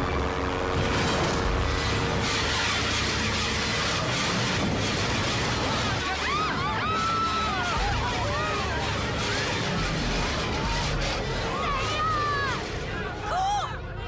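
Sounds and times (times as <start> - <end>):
light aircraft engine and wind rush: 0.0 - 13.9
people screaming: 5.2 - 14.0.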